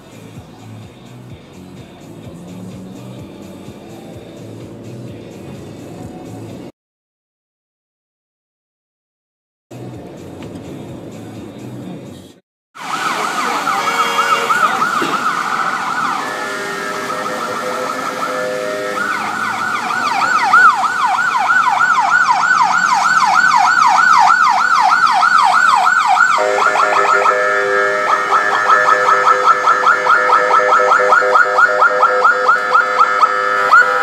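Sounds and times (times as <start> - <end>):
ambulance siren yelping: 12.8 - 34.0
low steady tones: 15.0 - 22.4.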